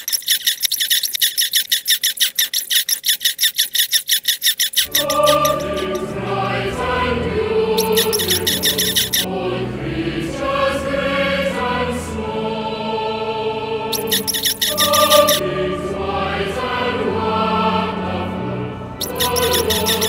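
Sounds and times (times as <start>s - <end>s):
high chirps: 0.0s - 6.2s, 7.8s - 9.3s, 13.9s - 15.4s, 19.0s - 20.0s
choral chanting: 4.9s - 20.0s.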